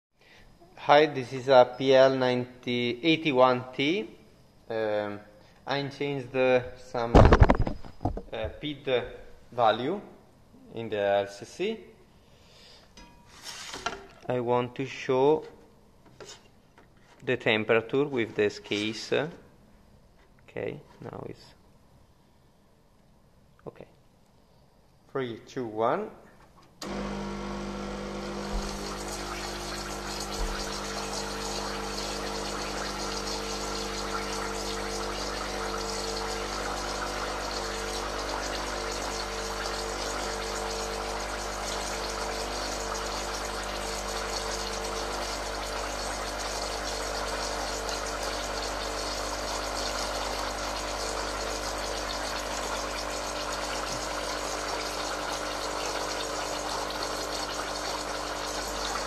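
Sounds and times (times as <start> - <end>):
water rushing: 26.8 - 48.1
espresso machine pump humming: 26.8 - 59.0.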